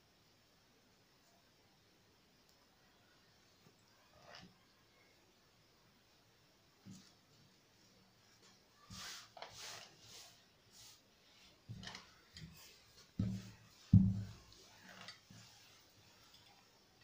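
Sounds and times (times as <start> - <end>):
fabric rustling: 8.2 - 17.0
dull thumps on table: 13.2 - 14.5.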